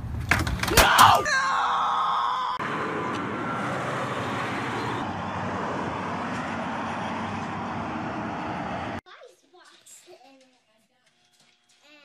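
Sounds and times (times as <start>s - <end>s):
street traffic: 0.0s - 9.0s.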